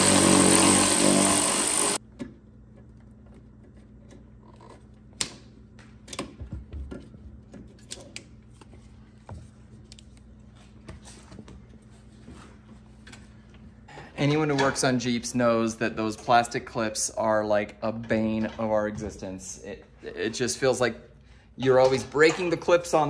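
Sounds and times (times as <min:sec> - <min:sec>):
electric ratchet spinning bolt: 0:00.0 - 0:02.0.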